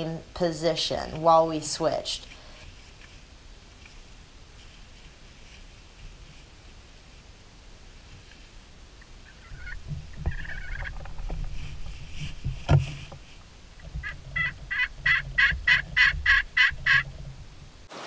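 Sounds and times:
rumble and rustle of people shifting: 0.0s - 17.9s
turkey call yelps: 9.0s - 11.0s, 14.0s - 17.1s.

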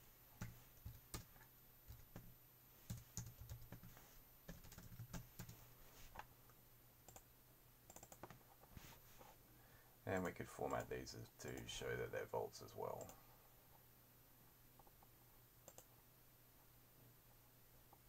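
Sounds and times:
typing on computer keyboard: 0.4s - 2.3s, 2.9s - 3.9s, 4.5s - 5.6s, 7.9s - 8.4s, 15.6s - 15.9s.

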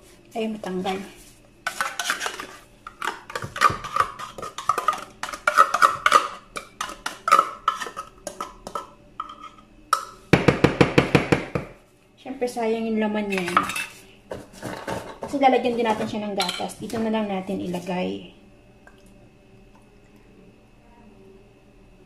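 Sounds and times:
metal spoon scraping a tin: 1.7s - 9.6s.

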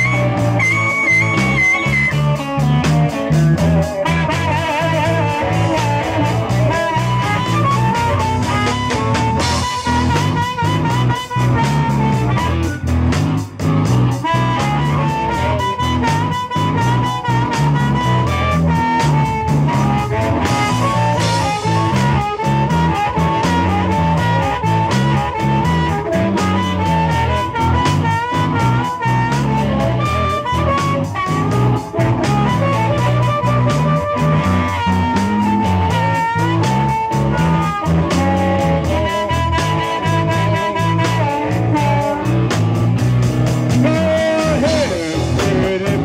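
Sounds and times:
live blues-rock band: 0.0s - 46.0s
wavering lead melody: 0.0s - 46.0s.

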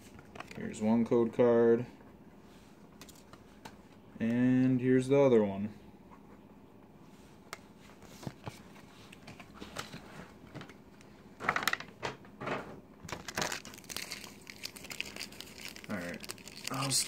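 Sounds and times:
plastic packaging crinkling: 13.0s - 17.0s.

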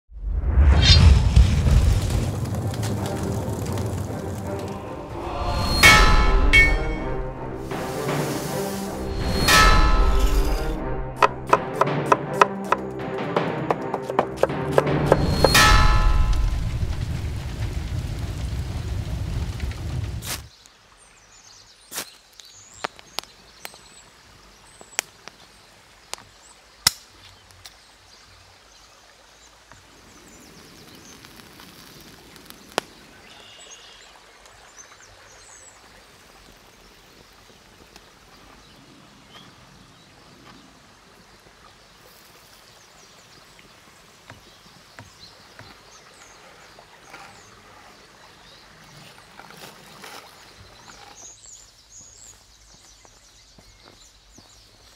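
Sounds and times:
forest stream running: 1.4s - 54.9s
birdsong: 32.6s - 54.9s.

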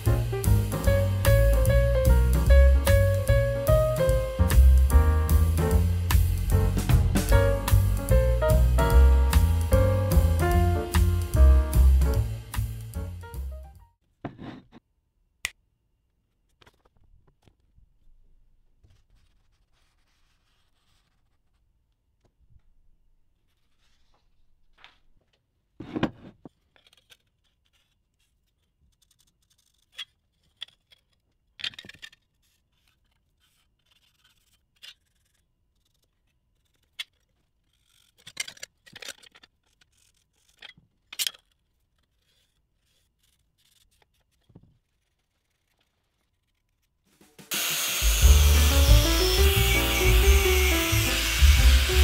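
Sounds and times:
loud music: 0.0s - 13.6s, 47.5s - 52.0s.

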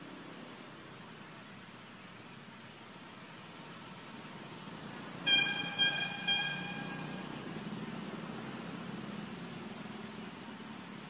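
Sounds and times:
high ringing tone strikes: 5.3s - 7.4s.

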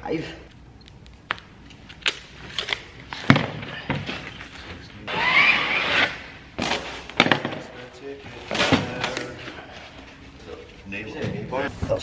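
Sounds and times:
squeaky rubbing of foam: 4.8s - 6.3s.

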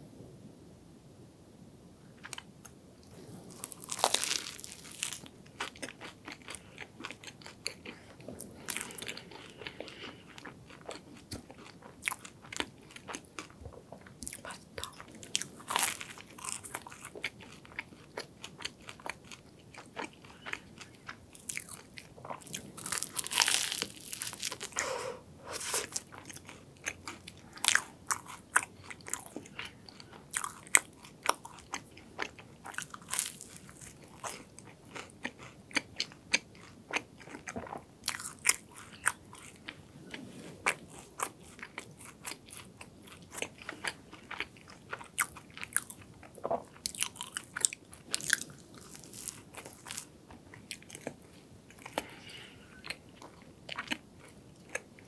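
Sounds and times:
chewing with crackles: 2.2s - 24.9s, 25.6s - 55.0s
crunchy bite: 3.5s - 7.9s, 21.4s - 29.6s, 30.3s - 39.7s.

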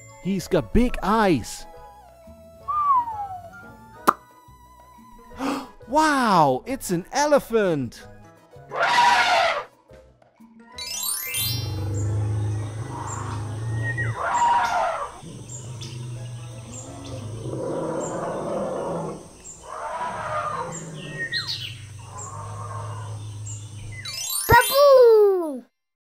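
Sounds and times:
birds chirping: 11.3s - 24.9s
steady low hum: 11.6s - 14.2s.

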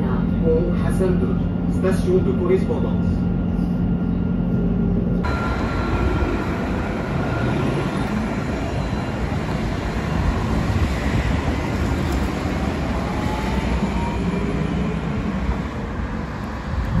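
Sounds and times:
tram wheels on rails: 4.8s - 17.0s.

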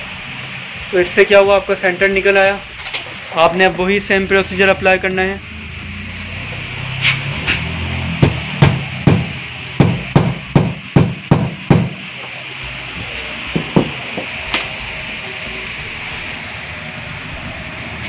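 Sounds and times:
hammer striking nail: 8.2s - 12.0s.

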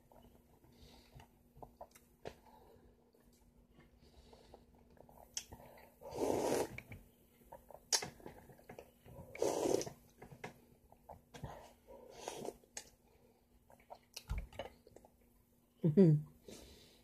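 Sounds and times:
wet slurps: 5.4s - 6.9s, 9.3s - 10.0s.

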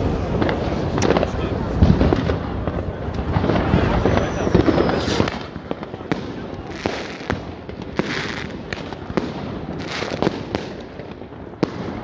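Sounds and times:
crackling firework bursts: 0.0s - 12.0s
fireworks bangs and pops: 0.0s - 12.0s.

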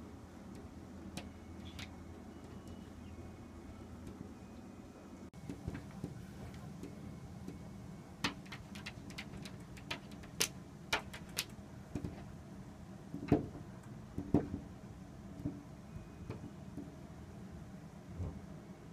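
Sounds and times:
puppy clicking against glass door: 8.2s - 12.3s
dull knocks against glass: 14.2s - 14.6s.

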